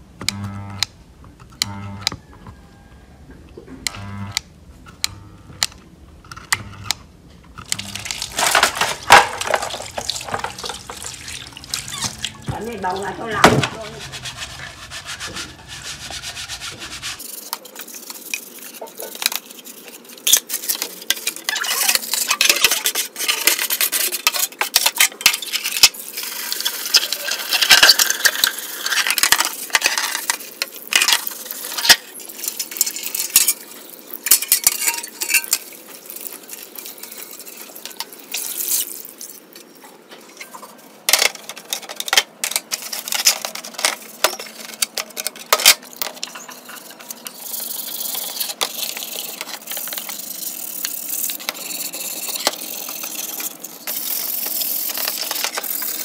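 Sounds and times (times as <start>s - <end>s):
parts knocking and clattering: 7.5s - 17.2s
scouring pad scrubbing plastic: 7.8s - 20.1s.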